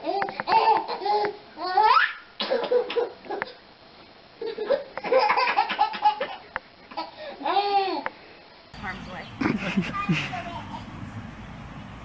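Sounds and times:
baby laughing: 0.0s - 3.6s, 4.4s - 8.0s, 9.4s - 10.8s.

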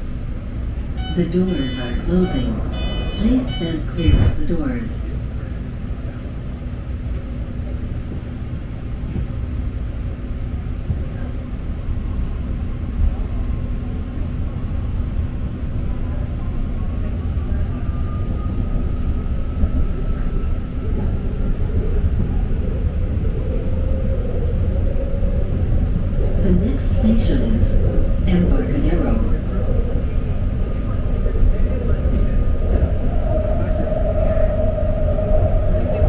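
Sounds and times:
train rumbling on rails: 0.0s - 36.0s.

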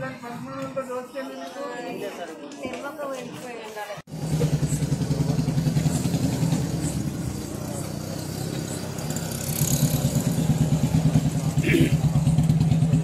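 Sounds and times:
vehicle engine running: 4.1s - 13.0s.

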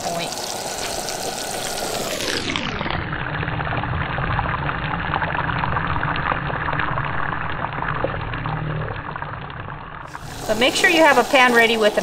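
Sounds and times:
fish sizzling in a frying pan: 0.0s - 2.9s, 10.0s - 12.0s.

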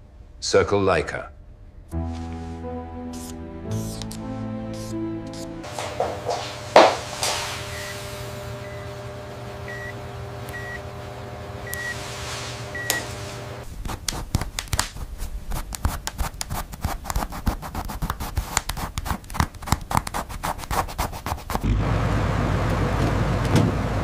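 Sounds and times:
steady hum: 1.3s - 15.8s
pencil scratching on paper: 3.1s - 4.1s, 4.7s - 5.5s, 13.7s - 21.6s
medical monitor beeping: 6.0s - 11.0s, 11.6s - 13.6s.

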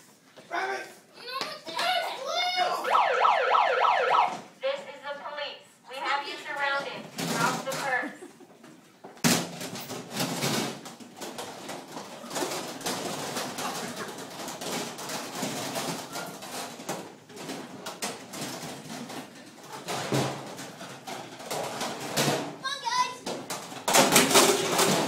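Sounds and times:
metal cans scraping and knocking: 9.3s - 25.0s.

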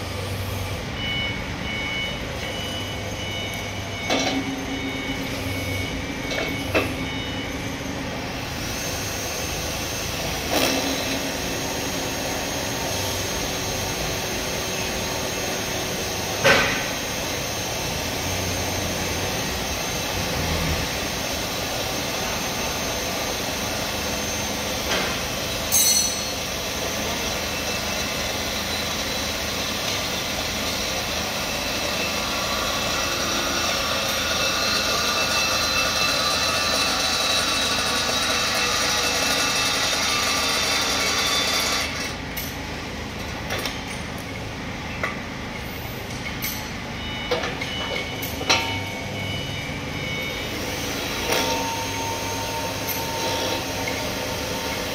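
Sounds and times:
impact wrench running: 8.6s - 42.6s.

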